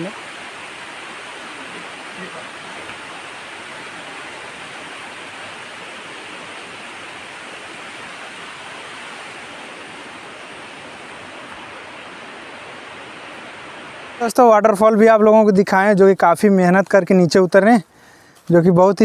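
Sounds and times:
waterfall rushing: 0.0s - 15.9s.

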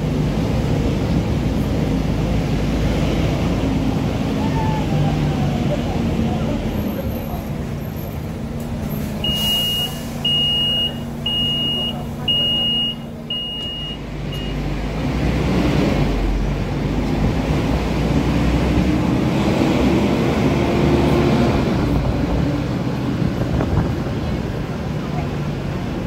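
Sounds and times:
bus diesel engine accelerating: 0.0s - 26.0s
short beeps: 9.2s - 14.6s.

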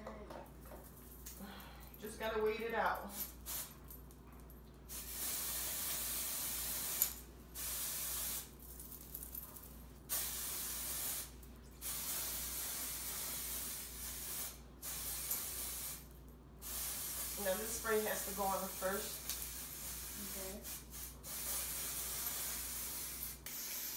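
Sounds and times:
aerosol can spraying: 3.4s - 3.8s, 4.9s - 8.5s, 10.1s - 23.9s.

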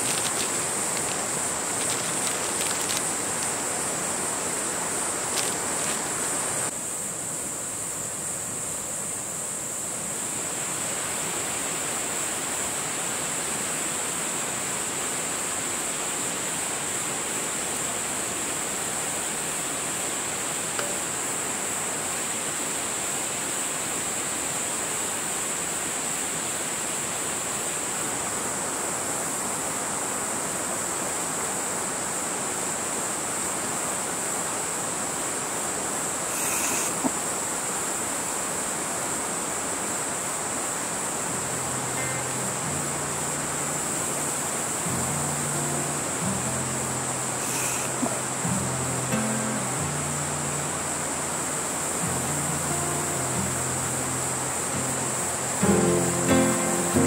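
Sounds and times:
steady rushing noise: 0.0s - 6.7s
high-pitched insect trill: 0.0s - 57.0s.

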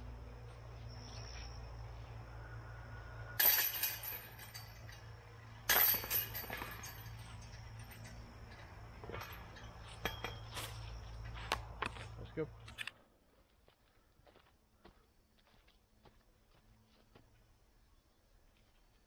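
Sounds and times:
light clinks and clacks: 3.3s - 11.2s
discs striking metal basket chains: 3.4s - 10.9s.

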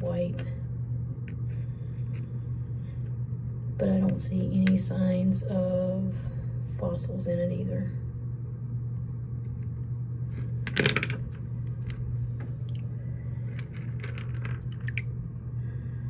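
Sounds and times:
steady low hum: 0.0s - 16.0s
wet stones clicking in water: 14.0s - 15.1s.

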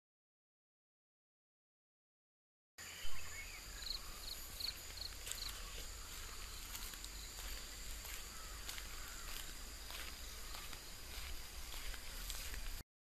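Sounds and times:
bird chirping: 2.8s - 12.7s
high insect drone: 2.8s - 12.8s.

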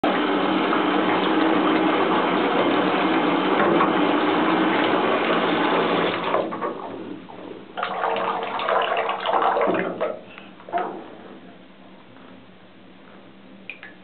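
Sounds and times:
bathtub water churning: 0.0s - 11.4s
faint steady hum: 6.5s - 14.0s.

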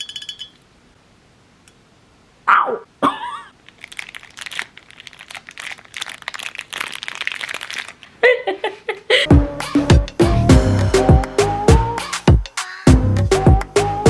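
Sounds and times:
plastic candy wrapper crinkling: 3.5s - 8.2s
music with a beat: 9.3s - 14.0s.

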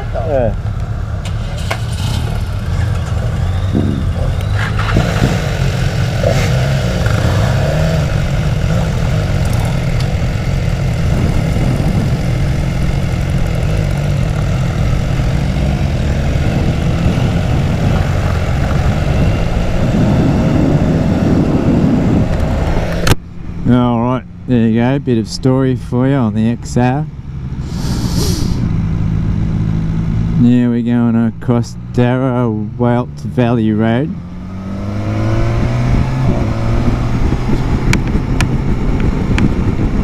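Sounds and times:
motorcycle engine running: 0.0s - 40.0s
wind rumble on microphone: 1.8s - 23.9s, 34.1s - 40.0s.

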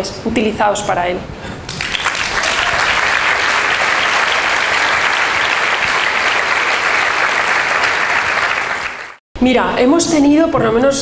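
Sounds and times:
audience applauding: 1.7s - 9.2s.

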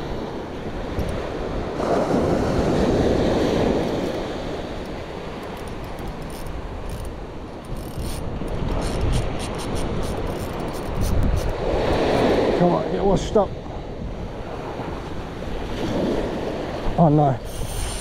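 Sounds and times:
surf breaking on a beach: 0.0s - 5.6s, 11.1s - 18.0s
wind buffeting the microphone: 0.0s - 18.0s.

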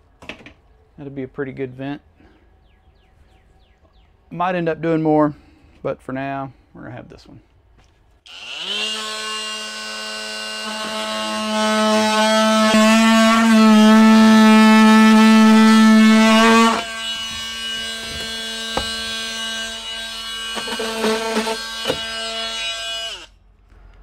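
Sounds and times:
power saw cutting plywood: 8.3s - 23.3s.

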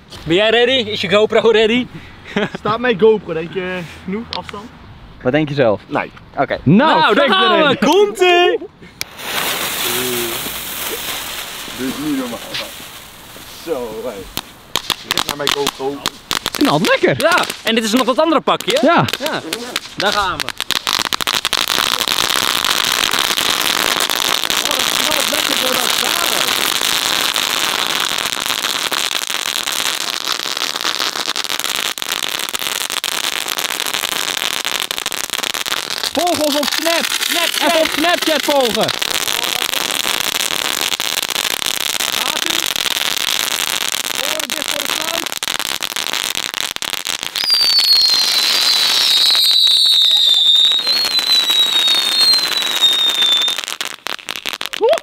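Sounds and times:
ground firework hissing and crackling: 6.9s - 55.0s
firework shrill whistle: 47.3s - 53.8s.

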